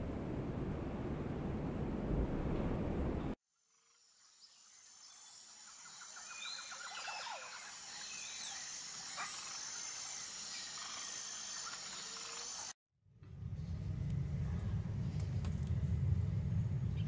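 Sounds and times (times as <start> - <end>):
steady high hum: 13.2 - 17.0.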